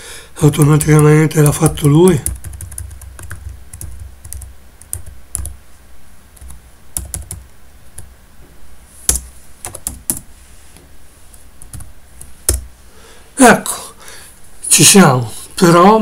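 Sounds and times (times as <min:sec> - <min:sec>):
computer keyboard keystrokes: 0:00.6 - 0:05.6, 0:06.4 - 0:07.4, 0:09.1 - 0:10.3.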